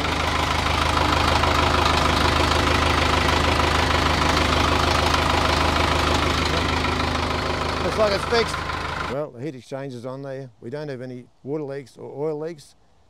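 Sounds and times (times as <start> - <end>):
diesel engine idling: 0.0 - 9.2.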